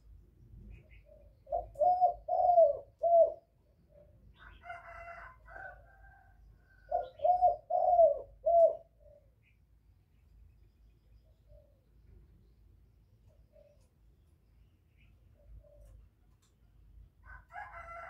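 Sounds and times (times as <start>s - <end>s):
dove cooing: 0.9s - 9.4s, 13.2s - 13.9s, 15.4s - 16.0s.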